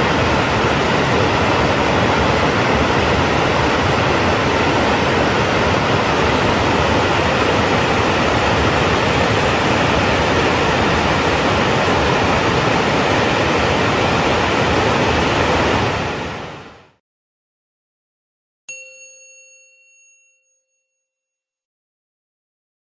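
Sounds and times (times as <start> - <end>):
waterfall rushing: 0.0 - 16.7.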